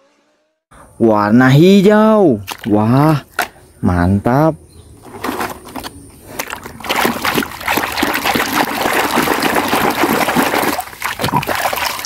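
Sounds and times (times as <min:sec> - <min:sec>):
water sloshing and splashing: 0:02.4 - 0:03.5, 0:05.0 - 0:12.0.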